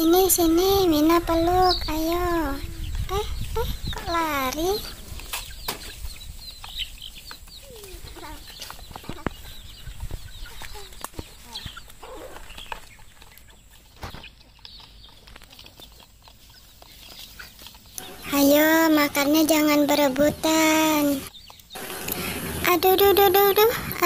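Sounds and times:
chickens clucking: 0.0s - 24.0s
wings flapping: 15.3s - 24.0s.

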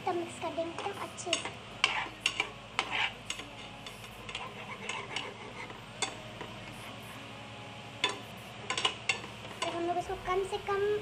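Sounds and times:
metal spoon scraping and clinking pan: 0.8s - 6.2s, 8.0s - 9.8s.

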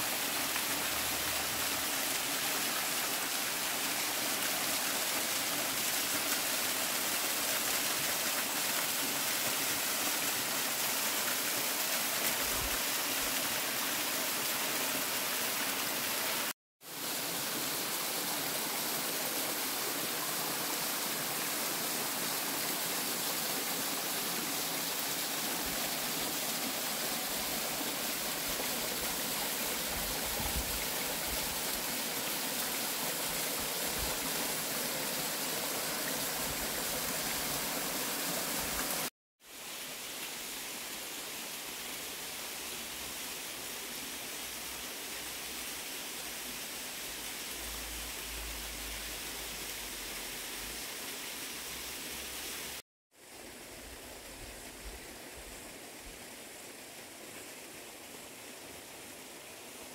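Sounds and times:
waterfall rushing: 7.4s - 39.1s.

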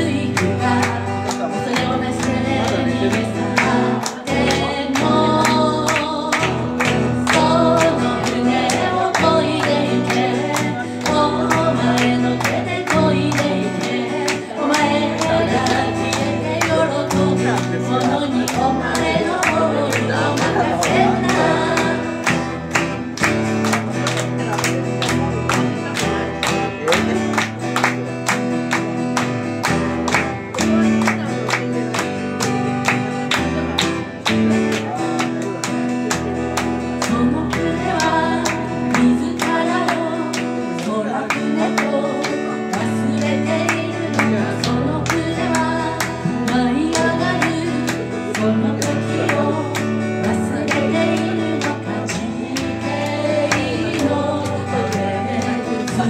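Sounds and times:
woman singing: 0.0s - 22.6s, 36.8s - 56.0s
acoustic guitar strumming: 0.0s - 56.0s.

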